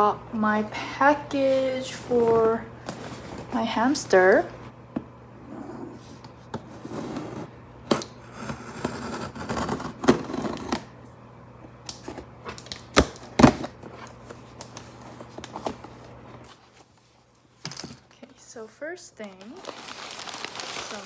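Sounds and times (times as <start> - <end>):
cardboard rustling: 19.2 - 21.0.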